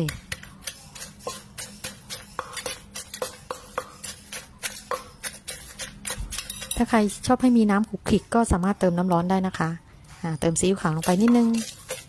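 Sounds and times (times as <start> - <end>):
wooden pestle pounding in mortar: 0.0 - 7.2, 11.0 - 12.0.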